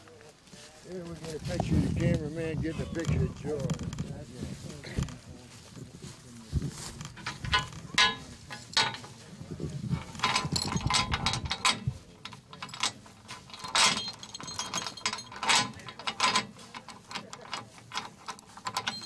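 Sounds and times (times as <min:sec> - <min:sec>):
steel chain clinking against metal: 0:07.0 - 0:09.2, 0:09.8 - 0:19.0.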